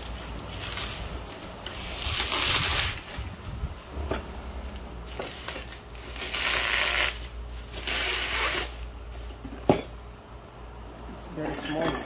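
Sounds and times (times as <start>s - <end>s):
plastic bag rustling: 0.0s - 9.5s.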